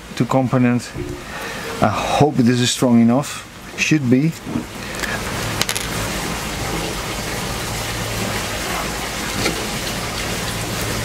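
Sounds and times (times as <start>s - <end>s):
low motor hum: 0.9s - 2.2s.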